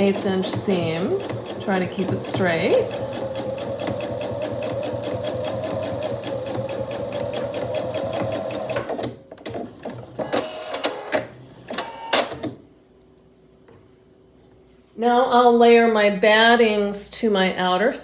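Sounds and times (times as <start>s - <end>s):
sewing machine stitching: 0.0s - 9.2s.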